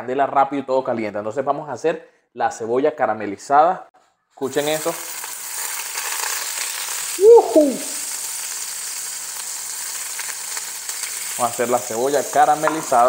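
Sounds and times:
food sizzling in oil: 4.4s - 13.0s
voice-like cry: 7.2s - 8.1s.

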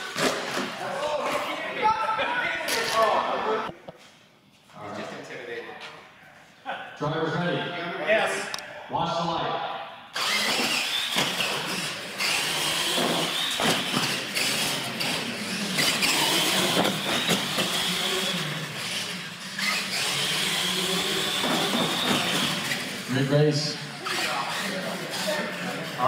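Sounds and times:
toy truck motors whining: 10.2s - 23.3s, 24.0s - 26.0s.

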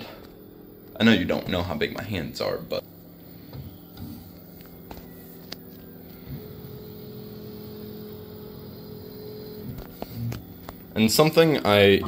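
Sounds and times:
printer motors and fans humming: 0.0s - 12.0s
high steady tone: 2.8s - 9.8s.

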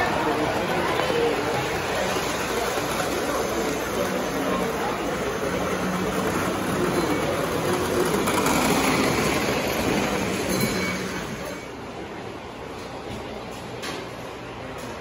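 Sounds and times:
model train wheels rattling on rails: 0.0s - 11.8s.

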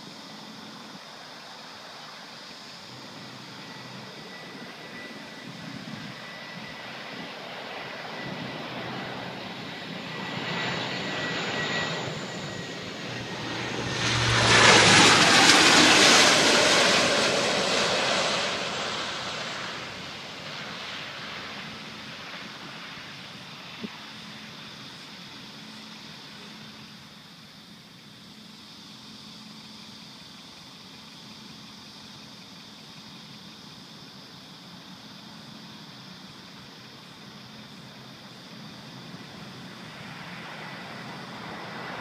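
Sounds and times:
airplane flying low overhead: 0.0s - 42.0s
high engine whine: 2.7s - 27.0s.

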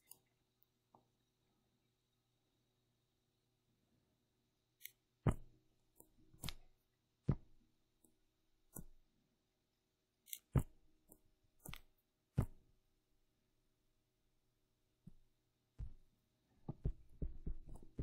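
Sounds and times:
computer mouse clicks: 0.0s - 0.3s.

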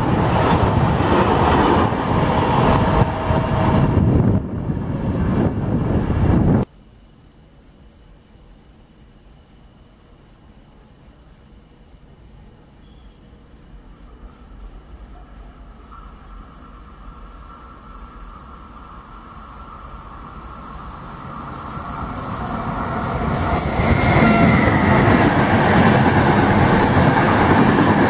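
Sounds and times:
approaching train: 0.0s - 6.7s, 14.1s - 28.0s
crickets chirping: 4.9s - 28.0s.

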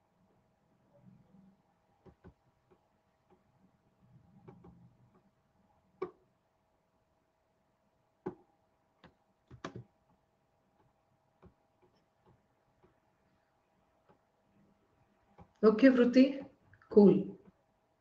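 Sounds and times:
faint steady hum: 0.0s - 18.0s
keyboard and mouse clicks: 2.0s - 2.4s, 4.4s - 5.3s, 9.0s - 9.9s.

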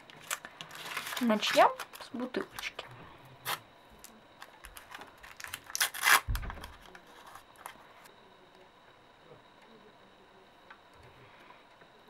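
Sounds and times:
paper packet tearing: 0.0s - 2.7s, 4.7s - 6.4s.

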